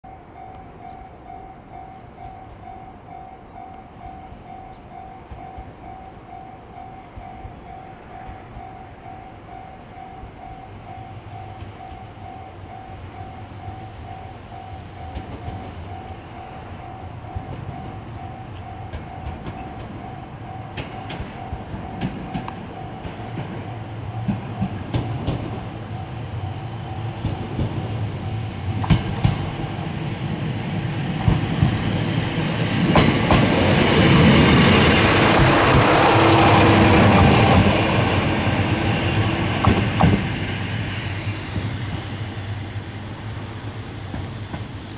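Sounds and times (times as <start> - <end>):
diesel railcar approaching: 0.0 - 44.9.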